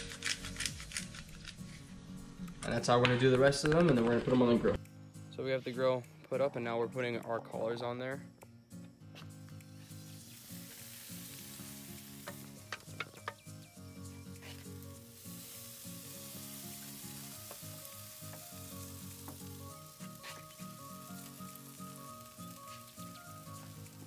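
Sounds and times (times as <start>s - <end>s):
sharp crackles: 0.0s - 4.8s, 9.6s - 24.0s
background music with a beat: 8.2s - 10.1s
fish sizzling on a grill: 9.7s - 24.0s.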